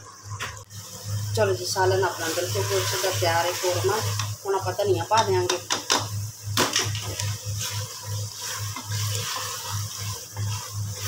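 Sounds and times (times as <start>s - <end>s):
sauce sizzling and bubbling: 0.0s - 11.0s
wooden spoon scraping a pot: 7.0s - 11.0s.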